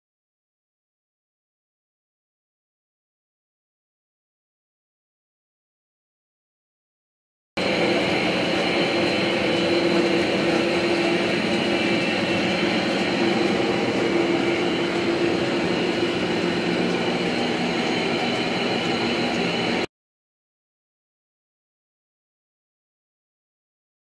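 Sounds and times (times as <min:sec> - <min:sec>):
grinding wheels turning: 0:07.6 - 0:19.9
machinery hum and clatter: 0:07.6 - 0:19.9.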